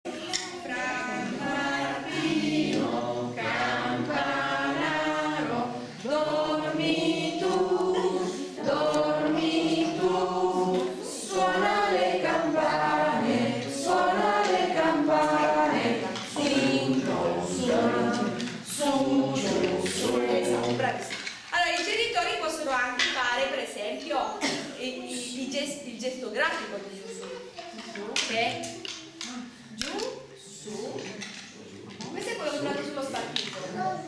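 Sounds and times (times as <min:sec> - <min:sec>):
group of voices singing: 0:00.0 - 0:21.5.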